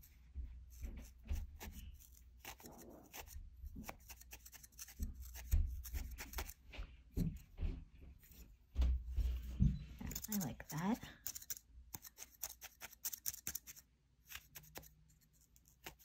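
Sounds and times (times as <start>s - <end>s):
felting needle poking wool: 0.0s - 7.5s, 8.2s - 16.0s.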